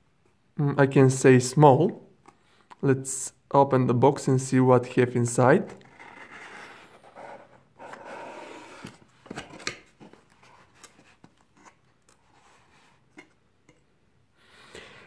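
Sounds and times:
cardboard lid scraping rustle: 5.8s - 11.7s.

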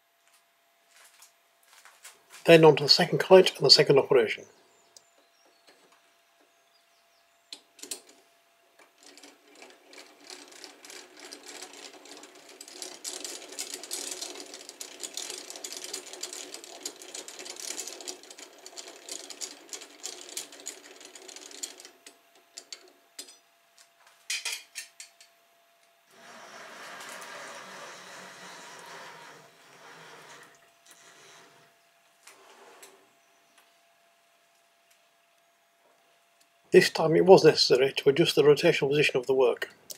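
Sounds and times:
lathe mechanism clicking and rattling: 8.8s - 23.4s, 26.1s - 33.0s.

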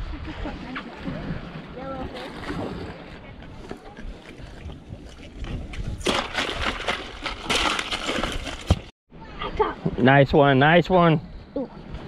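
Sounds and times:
water splashing against boat: 0.0s - 8.9s.

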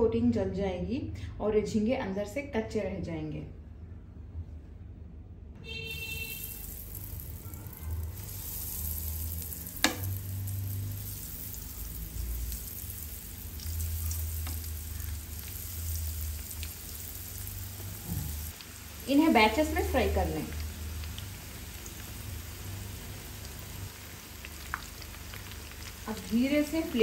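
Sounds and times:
food sizzling in hot oil: 6.1s - 27.0s.

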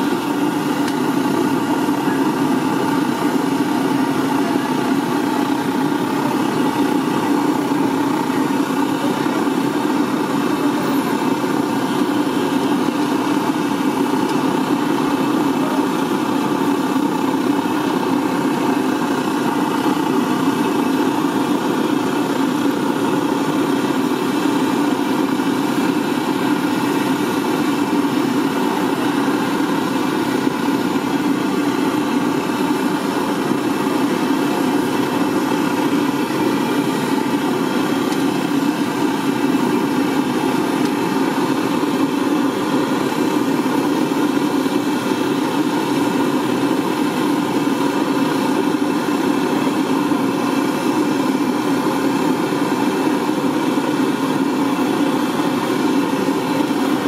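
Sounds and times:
steady mechanical hum: 0.0s - 57.0s.

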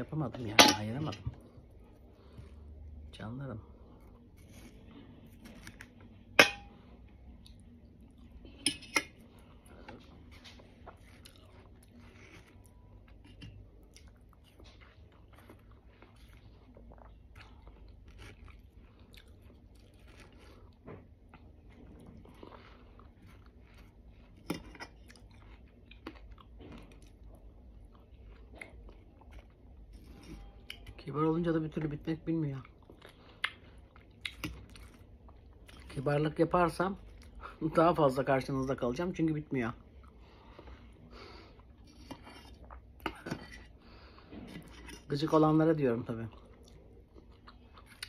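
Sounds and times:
cutlery clinking on metal bowl: 0.5s - 1.3s, 6.4s - 6.8s, 8.6s - 9.2s
chewing watermelon: 7.2s - 31.1s, 31.8s - 38.7s, 39.9s - 45.0s, 46.1s - 48.0s.

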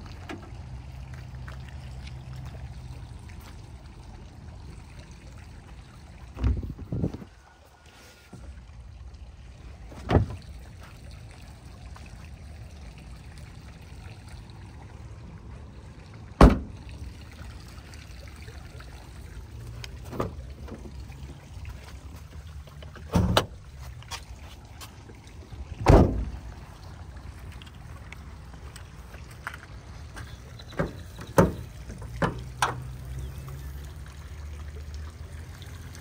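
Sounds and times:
car trunk lid slamming: 10.0s - 10.4s, 16.4s - 16.8s, 23.1s - 23.6s, 25.8s - 26.4s
knocks and bumps: 10.0s - 10.4s.

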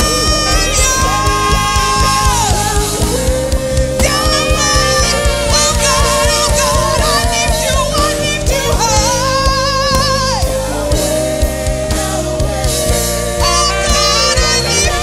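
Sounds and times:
drum kit beat: 0.0s - 15.0s
woman singing with vibrato: 0.0s - 15.0s.

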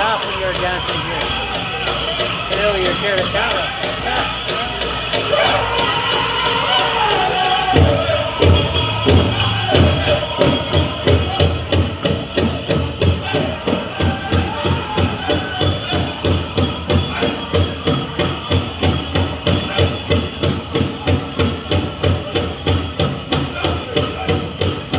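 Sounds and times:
big drum beating steadily: 0.0s - 24.9s
high-pitched group singing: 4.1s - 20.2s.

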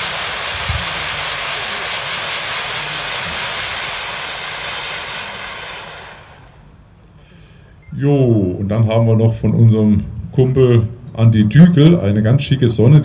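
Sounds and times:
fireworks fountain hissing: 0.0s - 7.2s.

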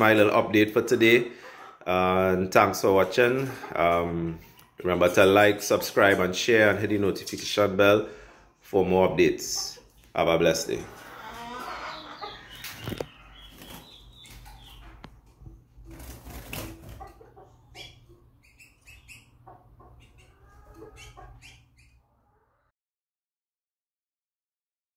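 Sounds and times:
bird wing flutters: 15.9s - 17.0s.

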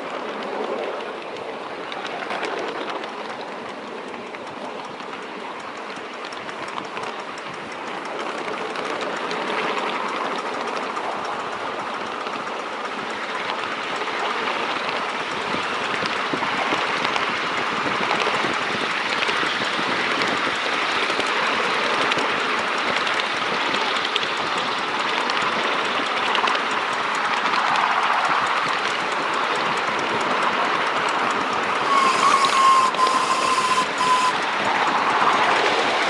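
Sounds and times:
train wheels clicking over rails: 0.0s - 36.0s.

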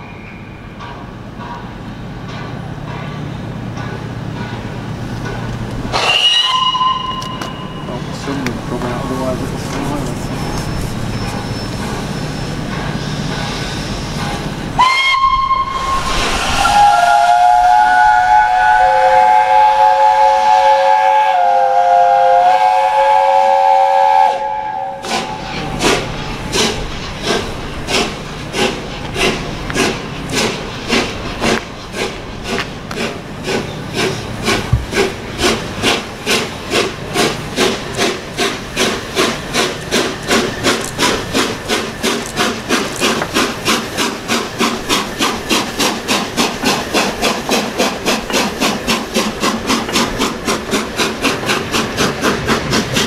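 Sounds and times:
steam locomotive exhaust beats: 0.0s - 53.0s
steam locomotive bell whistle: 5.9s - 8.1s, 13.2s - 25.4s
steam locomotive chime whistle: 5.9s - 8.3s, 10.6s - 25.5s
steam hiss: 5.9s - 53.0s.

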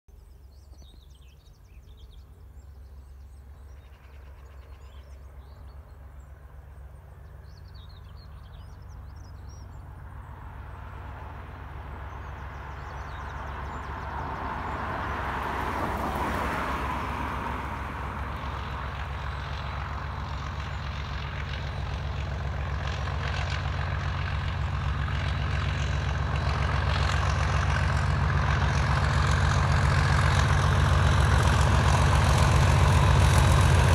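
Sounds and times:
small birds chirping: 0.1s - 10.4s, 12.0s - 14.8s
diesel locomotive engine drone: 0.1s - 33.9s.

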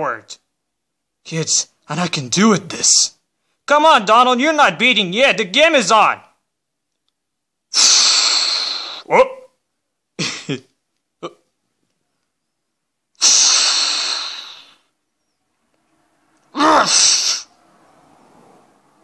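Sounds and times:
raspy wavering outburst: 7.8s - 9.5s, 13.2s - 14.9s, 16.4s - 18.2s.

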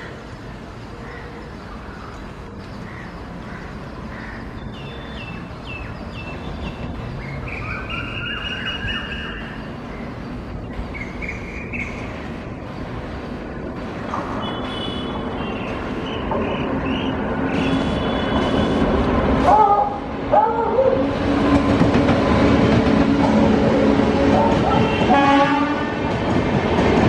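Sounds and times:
birds chirping: 0.0s - 13.8s
train rumbling: 0.0s - 27.0s.

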